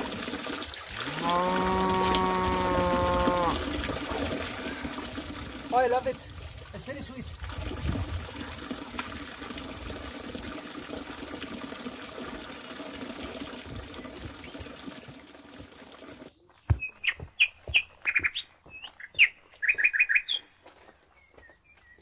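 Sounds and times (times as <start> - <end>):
running water rushing: 0.0 - 16.3
songbird chirping: 16.3 - 22.0.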